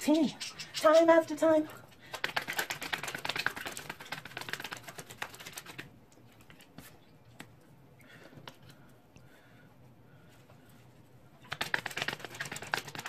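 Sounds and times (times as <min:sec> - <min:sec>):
cards being shuffled: 0:11.4 - 0:13.0.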